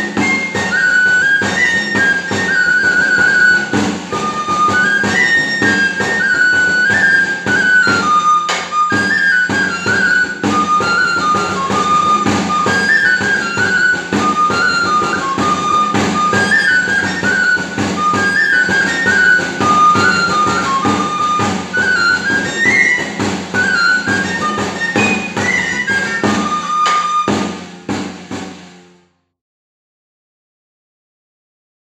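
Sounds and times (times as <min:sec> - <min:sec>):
three-hole pipe playing dance tune: 0:00.0 - 0:28.8
drum beats: 0:00.0 - 0:29.0.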